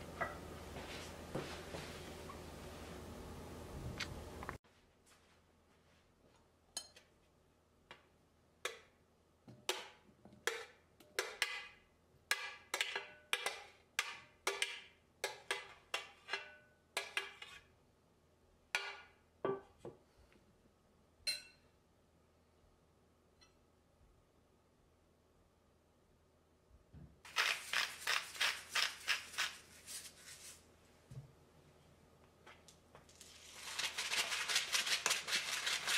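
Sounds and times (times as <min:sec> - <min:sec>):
spoon and tray clinking on glass: 0:21.3 - 0:21.6.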